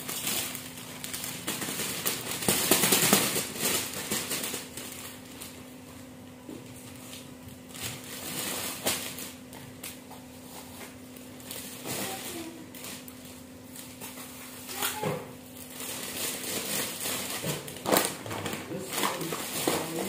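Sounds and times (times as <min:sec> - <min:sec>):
plastic bags crinkling: 0:00.0 - 0:20.0.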